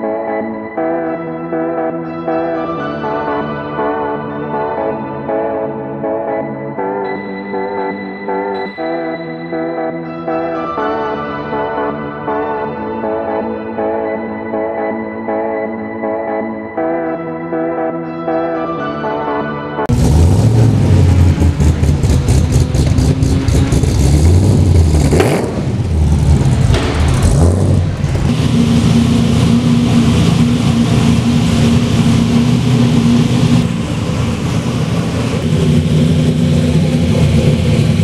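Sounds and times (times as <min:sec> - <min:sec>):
racing car engine idling and revving: 0:19.9 - 0:38.0.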